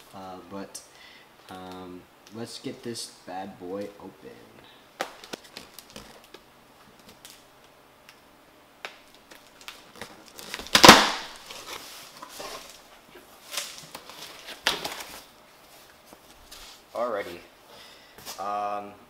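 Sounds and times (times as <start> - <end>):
tape and cardboard ripping: 8.9 - 15.3
cardboard scraping and rustling: 9.8 - 15.3
blade slicing packing tape: 10.4 - 11.5.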